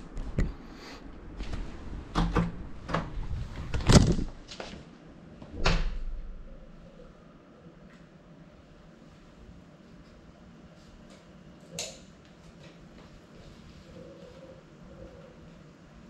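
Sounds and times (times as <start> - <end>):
handling knocks and clunks: 2.2 - 4.4.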